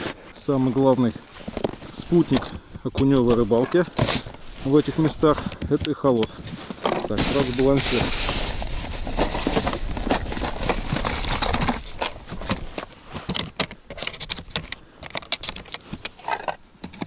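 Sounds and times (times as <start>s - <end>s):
plastic rustling: 6.5s - 13.0s
tackle box latch clicks and rattles: 12.0s - 17.0s.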